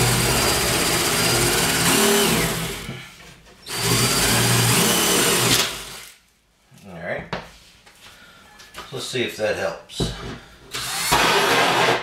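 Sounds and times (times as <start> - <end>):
cordless drill boring into wood: 0.0 - 2.9, 3.7 - 6.1, 10.7 - 12.0.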